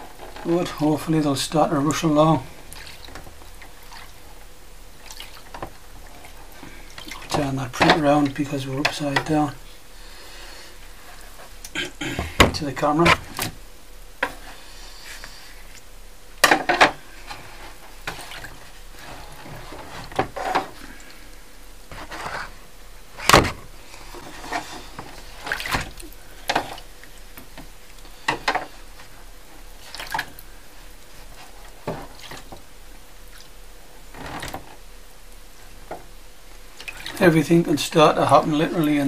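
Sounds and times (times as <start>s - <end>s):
liquid sloshing in plastic tray: 5.0s - 9.4s, 23.2s - 27.6s, 29.8s - 30.4s, 36.8s - 37.4s.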